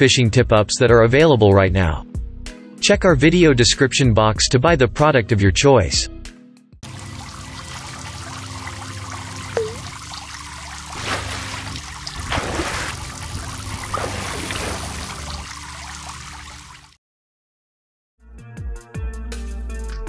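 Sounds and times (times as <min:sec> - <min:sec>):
water trickling and splashing: 0:06.8 - 0:17.0.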